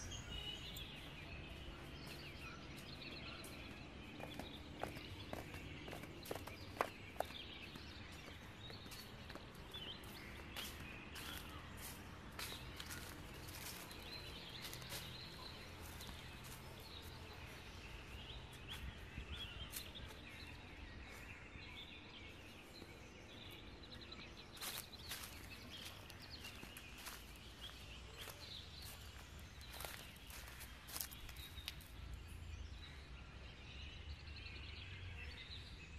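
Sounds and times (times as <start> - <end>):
birds chirping: 0.0 - 35.9
footsteps on dry leaves: 0.2 - 21.5, 23.9 - 32.0.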